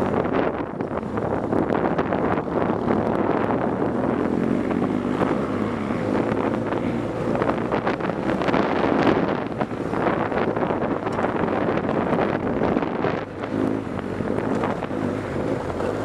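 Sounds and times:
motorcycle engine running hard: 0:00.0 - 0:16.0
wind on microphone: 0:00.0 - 0:16.0
motorcycle knocks and rattles: 0:07.6 - 0:16.0.

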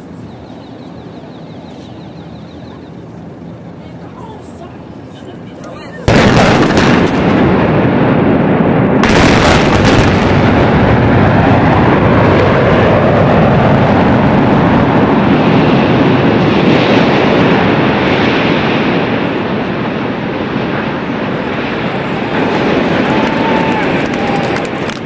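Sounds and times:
tower collapsing rumble: 0:06.0 - 0:25.0
explosive charges cracking: 0:06.1 - 0:25.0.

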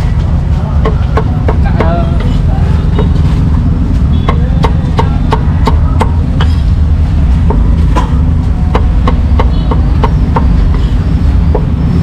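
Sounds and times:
low rumble: 0:00.0 - 0:12.0
cleaver chopping on wooden block: 0:04.3 - 0:06.2, 0:07.5 - 0:10.9.

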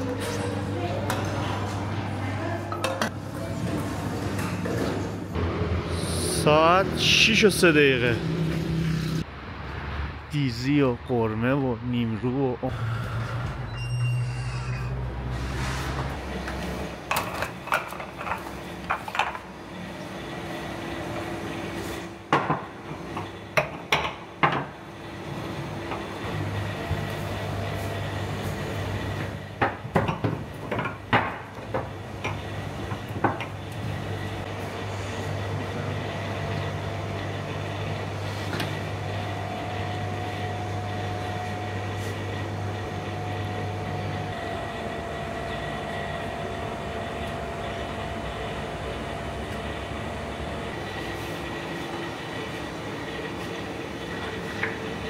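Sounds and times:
low machine hum: 0:30.9 - 0:55.0.

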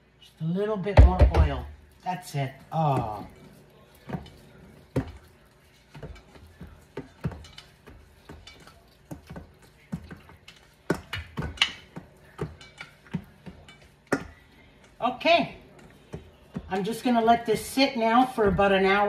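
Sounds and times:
dough patted in metal bowl: 0:00.9 - 0:19.0.

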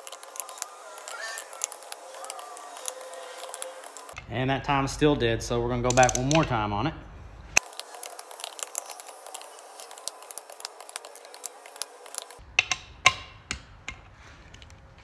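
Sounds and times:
torque wrench clicking: 0:05.9 - 0:06.5.

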